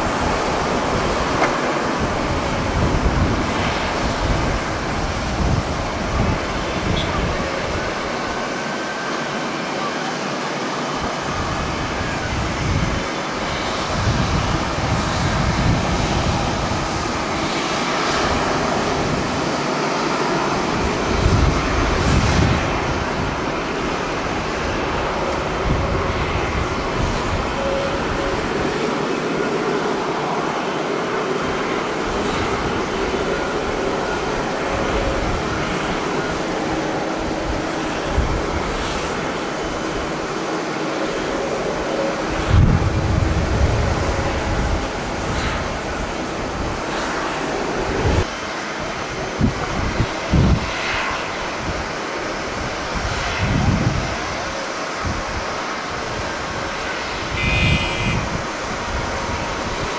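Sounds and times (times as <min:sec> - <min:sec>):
wind rumble on microphone: 0:00.0 - 0:08.7, 0:11.0 - 0:29.5, 0:31.4 - 0:59.9
jet engine roar: 0:00.0 - 0:59.9.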